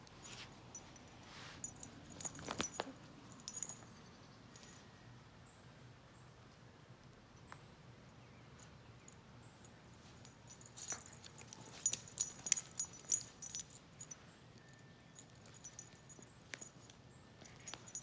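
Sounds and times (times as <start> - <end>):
light clicks and small jingles: 0.0 - 4.8, 8.5 - 18.0.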